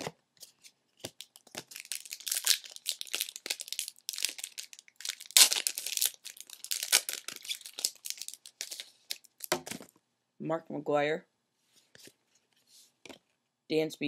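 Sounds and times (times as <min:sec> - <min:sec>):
plastic wrapper tearing and crinkling: 0:01.0 - 0:09.8.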